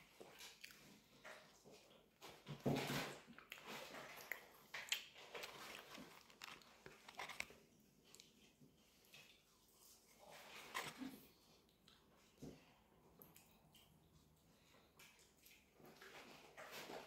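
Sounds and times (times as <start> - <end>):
person biting and chewing: 3.4 - 8.4.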